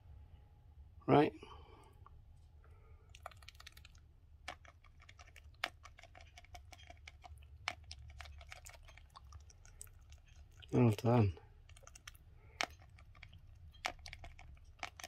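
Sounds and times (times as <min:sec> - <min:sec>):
hen beak tapping dish: 0:11.7 - 0:15.0.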